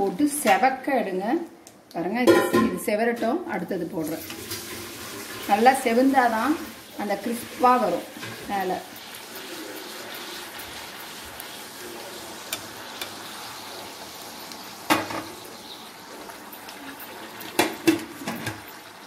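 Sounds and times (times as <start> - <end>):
deep-frying sizzle in hot oil: 4.0 - 19.0.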